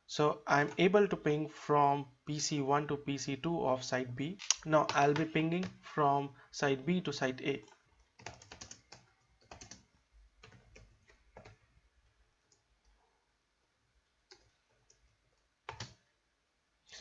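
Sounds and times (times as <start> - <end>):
keyboard typing: 4.4 - 5.8, 7.6 - 11.7, 14.1 - 16.1.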